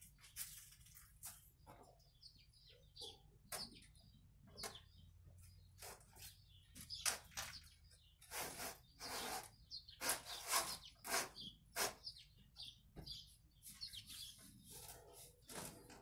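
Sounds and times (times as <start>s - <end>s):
wire scraping in metal conduit: 8.3s - 12.1s.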